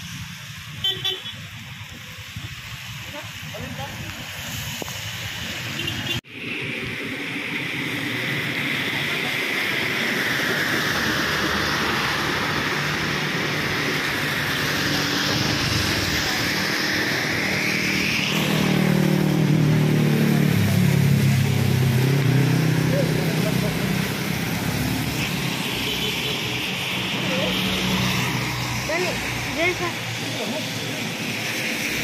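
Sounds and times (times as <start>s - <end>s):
steady rain: 0.0s - 32.0s
tyres hissing through water: 0.0s - 32.0s
vehicle engine passing by: 9.1s - 25.6s.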